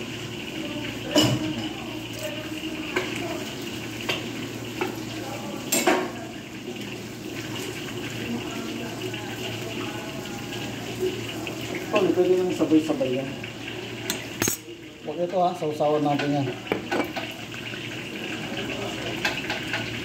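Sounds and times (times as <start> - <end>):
cooking hiss: 0.0 - 20.0
cookware clinking: 1.0 - 2.3, 5.6 - 6.2, 14.0 - 15.4, 16.0 - 17.4.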